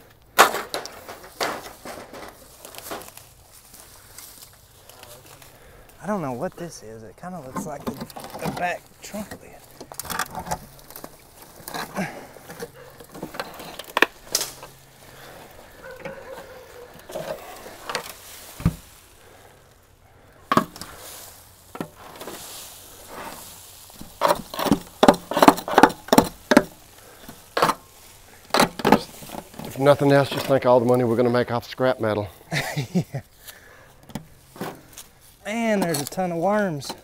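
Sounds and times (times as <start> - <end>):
trowel scraping through dirt: 20.6 - 30.7.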